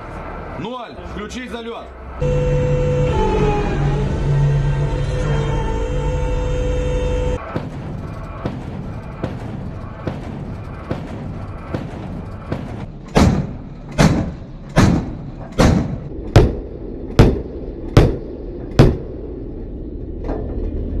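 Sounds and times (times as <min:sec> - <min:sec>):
deck gun firing: 0:10.1 - 0:16.6.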